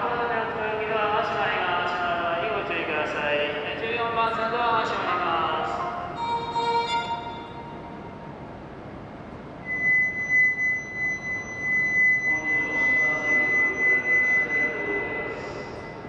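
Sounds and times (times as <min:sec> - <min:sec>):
high electronic warning tone: 0:09.6 - 0:16.0
announcement voice: 0:12.3 - 0:15.6.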